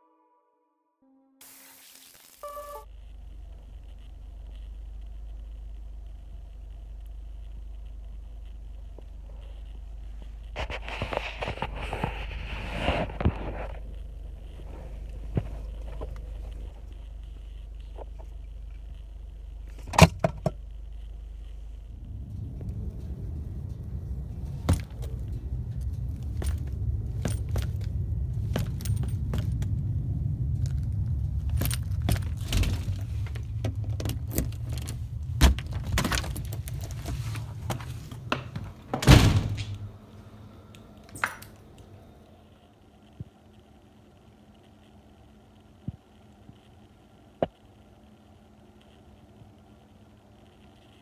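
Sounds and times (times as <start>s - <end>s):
low steady rumble: 2.4s - 51.0s
handling knocks and clicks: 24.4s - 29.8s, 30.6s - 39.8s
loud thud: 39.0s - 39.7s.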